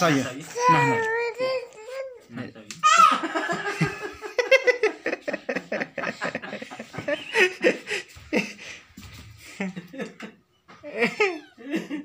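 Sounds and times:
people laughing: 3.0s - 12.0s.

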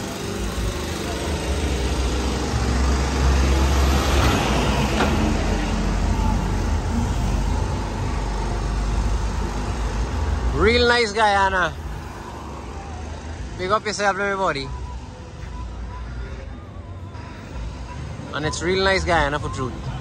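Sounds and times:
heavy truck passing: 0.0s - 14.0s
road traffic passing: 0.0s - 20.0s.

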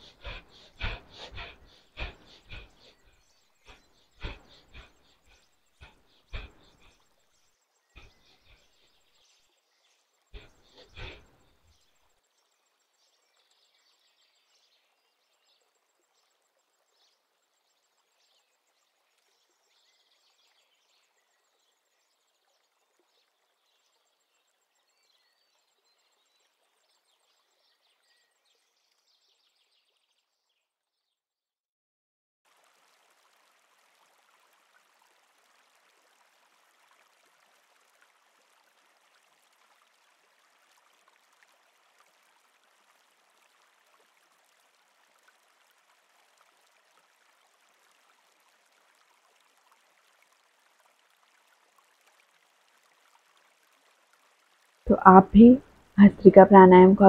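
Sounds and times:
forceful nasal breaths: 0.0s - 7.0s, 8.0s - 8.9s, 10.4s - 11.4s
faint hiss: 0.0s - 16.3s.

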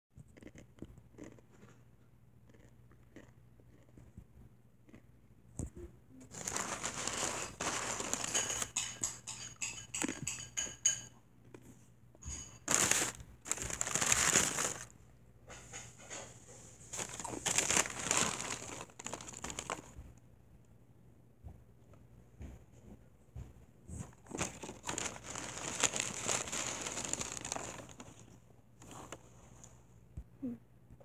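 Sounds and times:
crunchy food being chewed: 0.2s - 5.1s, 17.0s - 20.0s, 23.9s - 29.2s.

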